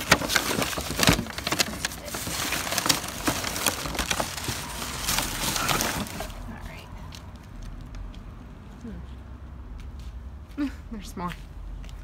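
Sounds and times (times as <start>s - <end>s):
plastic bags crinkling: 0.0s - 6.7s.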